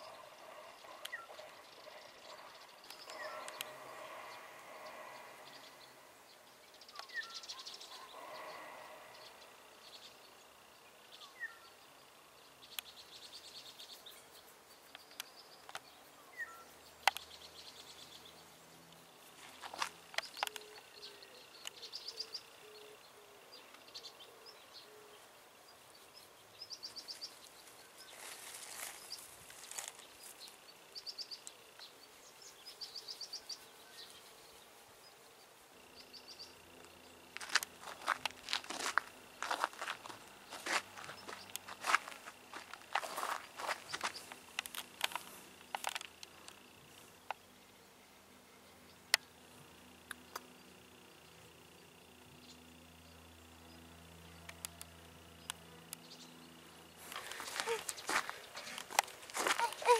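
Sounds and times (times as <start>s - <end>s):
bird chirps and calls: 0.0s - 6.0s, 6.8s - 10.2s
sharp clicks: 17.0s - 17.4s.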